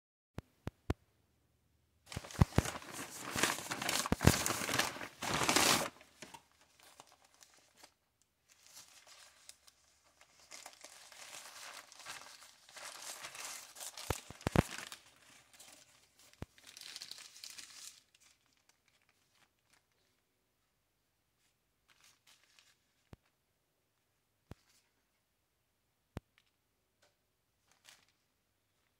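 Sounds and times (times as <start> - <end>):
paper bag rustling: 2.1 - 7.9, 8.5 - 20.2
paper wrapper crinkling: 2.1 - 20.2, 21.9 - 23.4, 27.6 - 28.9.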